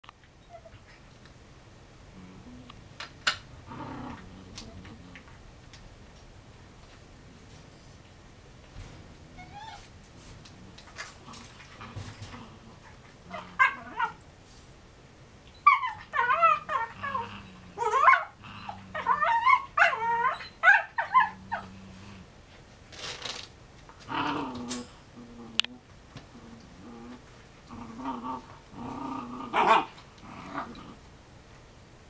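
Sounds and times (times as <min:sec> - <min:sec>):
puppies growling: 0:03.6 - 0:05.4, 0:08.8 - 0:14.2, 0:15.6 - 0:22.3, 0:24.0 - 0:31.1.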